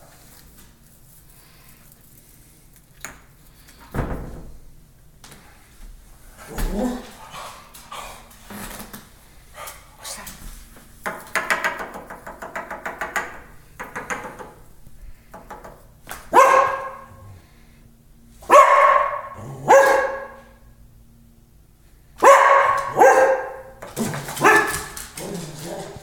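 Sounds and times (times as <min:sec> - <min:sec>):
dog barking: 0:16.3 - 0:17.2, 0:18.4 - 0:20.6, 0:22.2 - 0:26.0.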